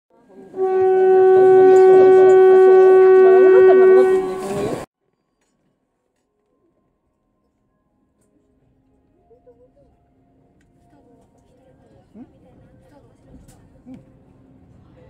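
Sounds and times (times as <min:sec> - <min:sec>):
train horn blast: 0:00.4 - 0:04.9.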